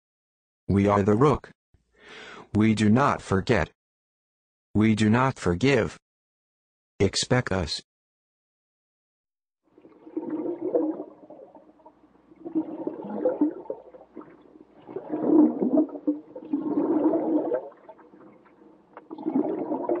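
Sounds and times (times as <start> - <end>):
stomach rumbling and gurgling: 9.7 - 20.0.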